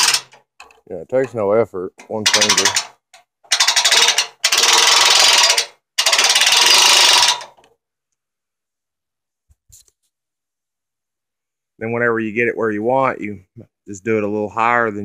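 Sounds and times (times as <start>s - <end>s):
winch ratchet clicking: 0.0s - 0.8s, 2.2s - 2.9s, 3.5s - 7.6s.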